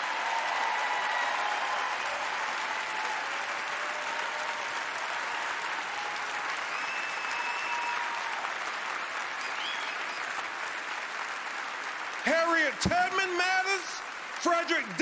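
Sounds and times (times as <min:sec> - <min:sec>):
large audience applauding: 0:00.0 - 0:15.0.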